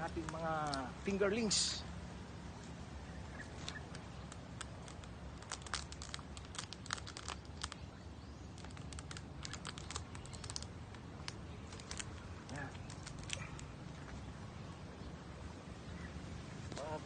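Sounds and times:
thin plastic crinkling: 3.3s - 14.2s.

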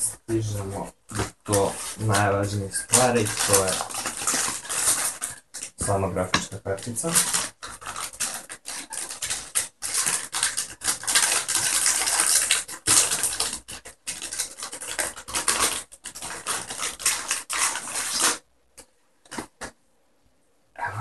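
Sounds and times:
plastic packaging crinkling: 0.0s - 18.5s.

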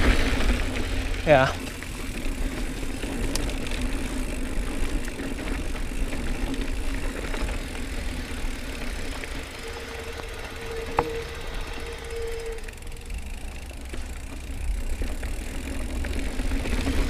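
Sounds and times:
bike rattling: 0.0s - 17.0s
bike tyres rolling on dirt: 0.0s - 17.0s
small clicks: 3.2s - 3.9s.

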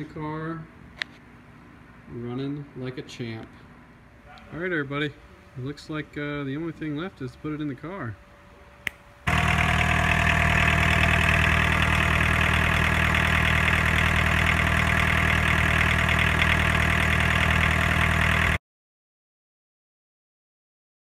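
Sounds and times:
diesel engine idling: 9.3s - 18.6s.

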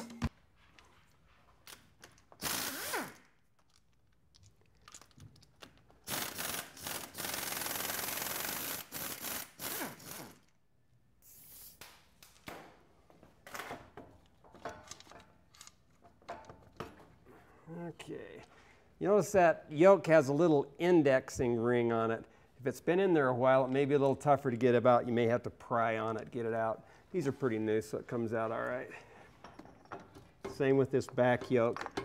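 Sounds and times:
air ratchet spinning: 2.4s - 3.3s, 6.0s - 10.5s
metal clinks: 29.3s - 30.4s.

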